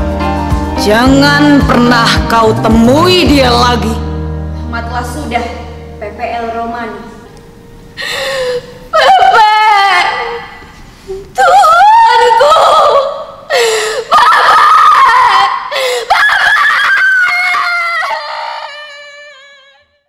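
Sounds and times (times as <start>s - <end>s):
young woman screaming and wailing: 8.2s - 10.6s, 11.4s - 19.9s.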